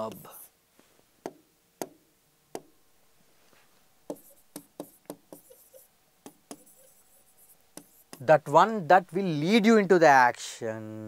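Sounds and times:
marker tapping on writing board: 1.2 - 2.7, 4.1 - 8.3.

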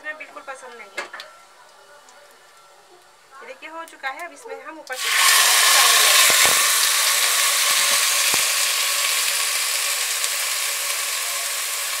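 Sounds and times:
rice sizzling in hot oil: 4.9 - 12.0.

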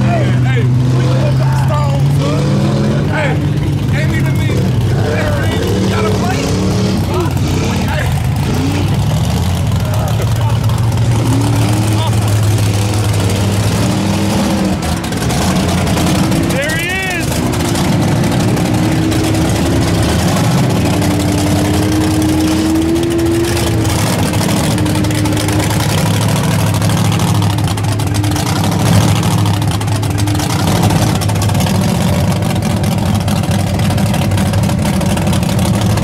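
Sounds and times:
truck engine running: 0.0 - 36.0.

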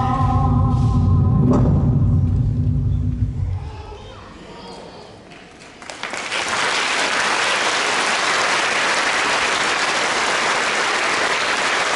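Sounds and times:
audience applause: 5.3 - 11.9.

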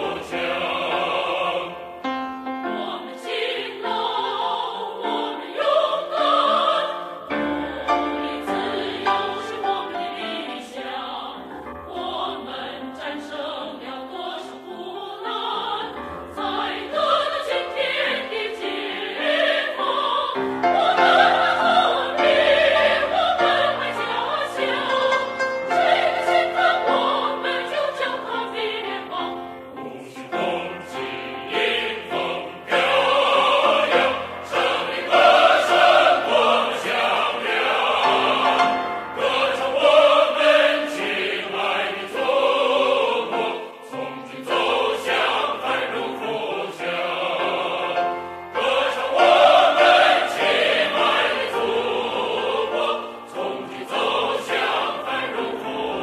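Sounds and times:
choir singing: 0.0 - 56.0
orchestral accompaniment: 16.1 - 56.0.

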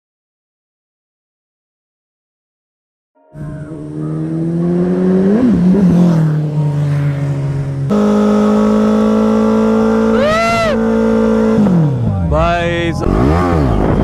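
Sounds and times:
motorcycle engine revving: 3.4 - 14.0
tyre squealing: 10.1 - 10.8.

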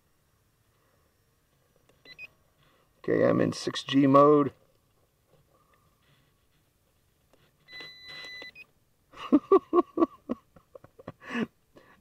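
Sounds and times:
short pulsing beeps: 7.7 - 8.7.

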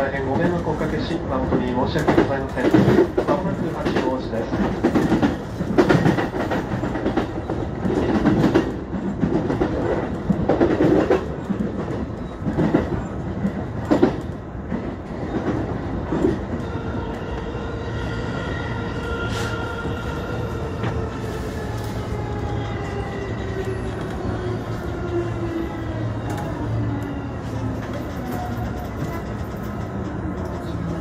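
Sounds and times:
train wheels clattering over rail joints: 2.0 - 16.4.

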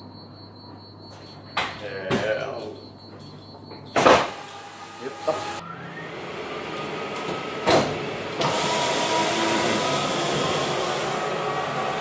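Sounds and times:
low machine noise: 4.0 - 12.0
suction motor rushing: 4.2 - 12.0.

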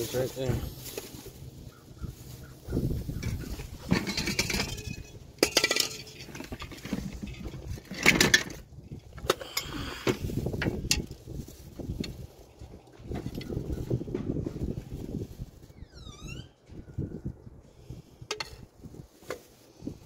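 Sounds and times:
loose metal parts clinking: 3.2 - 11.2.

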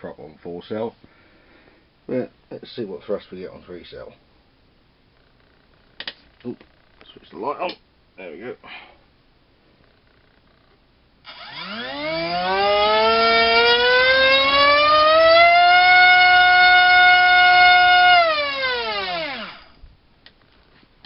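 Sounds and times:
drone motor whining: 11.2 - 19.8.

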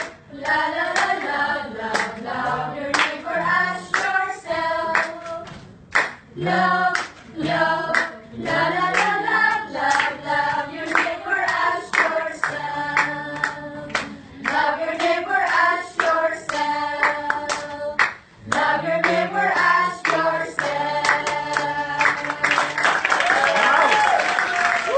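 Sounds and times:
group of voices singing: 0.0 - 5.7, 6.3 - 23.1
hand claps: 1.9 - 2.1, 2.9 - 3.2, 3.9 - 4.2, 4.9 - 6.3, 6.9 - 10.1, 10.9 - 24.9.

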